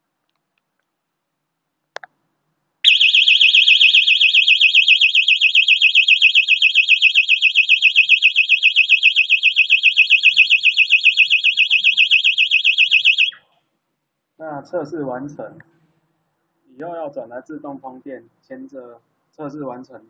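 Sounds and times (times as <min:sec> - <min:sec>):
warbling electronic siren: 0:02.9 - 0:13.4.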